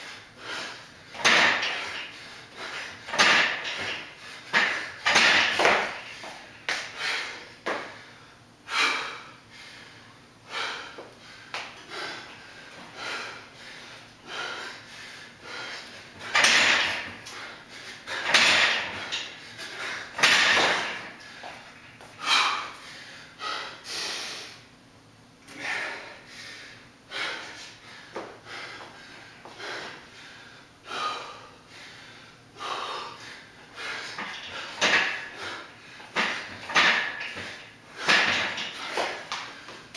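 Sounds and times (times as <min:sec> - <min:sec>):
man gasping breaths: 0:00.0 - 0:24.7, 0:25.4 - 0:39.9
steel pull-up rig rattling: 0:01.2 - 0:02.1, 0:03.1 - 0:06.1, 0:16.3 - 0:17.2, 0:18.2 - 0:19.4, 0:20.2 - 0:21.1, 0:36.2 - 0:38.9.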